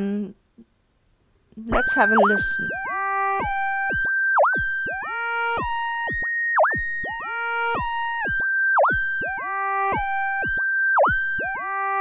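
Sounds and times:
synthesizer pitch swoops: 0:01.7 - 0:10.5
synthesizer sine-wave tones: 0:01.7 - 0:12.0.

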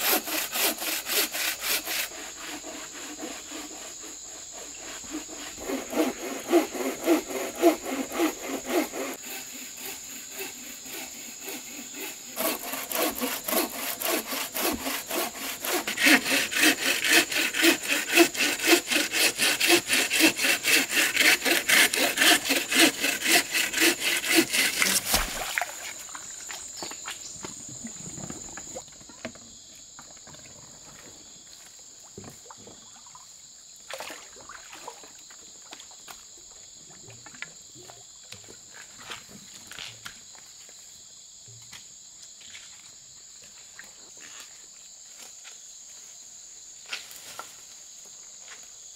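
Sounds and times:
hand saw cutting wood: 0:00.0 - 0:25.6.

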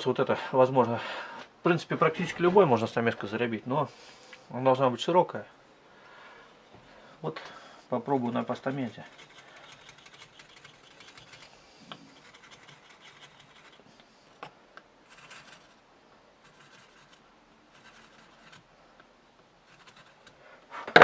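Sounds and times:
chisel scratching wood: 0:08.0 - 0:13.9, 0:15.0 - 0:15.8, 0:16.4 - 0:18.7, 0:19.6 - 0:20.4.

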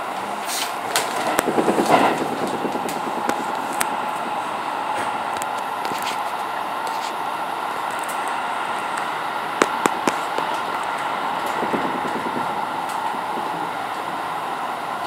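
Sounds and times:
subway train rushing noise: 0:00.0 - 0:15.0.

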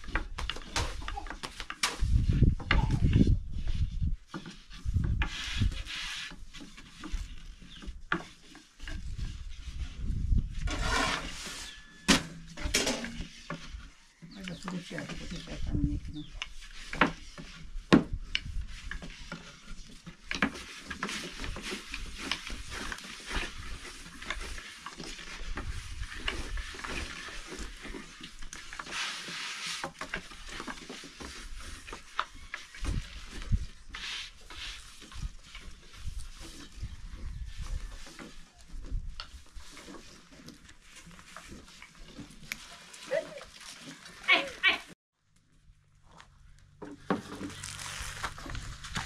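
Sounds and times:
rolling pin rubbing dough: 0:02.0 - 0:11.9, 0:14.7 - 0:43.1.

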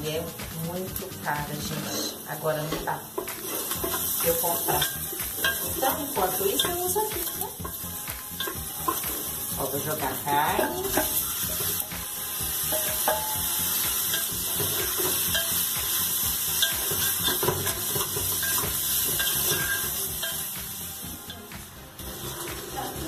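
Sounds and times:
meat sizzling in oil: 0:01.8 - 0:23.0
wooden spoon clinking: 0:03.6 - 0:09.0.

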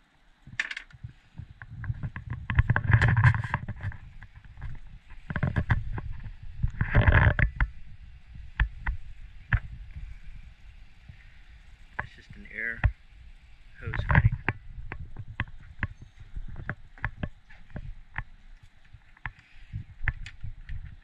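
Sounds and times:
small knocks and clicks: 0:00.5 - 0:07.8, 0:08.4 - 0:10.2, 0:13.8 - 0:21.0
microphone handling and wind noise: 0:00.5 - 0:21.0.

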